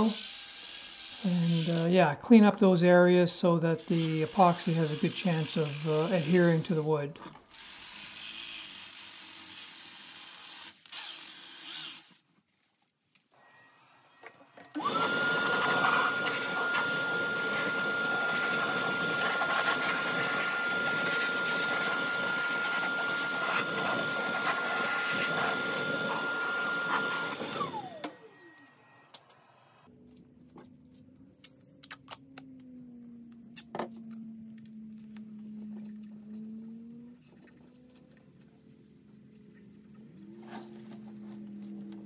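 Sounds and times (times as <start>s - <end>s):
shop vacuum whining: 3.6s - 7.8s, 13.3s - 29.9s, 32.6s - 42.0s.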